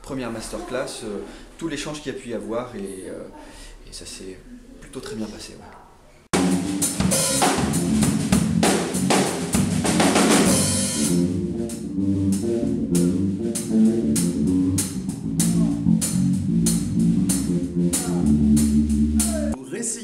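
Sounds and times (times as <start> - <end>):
drum kit playing: 6.3 - 19.6
electric bass guitar: 6.4 - 19.6.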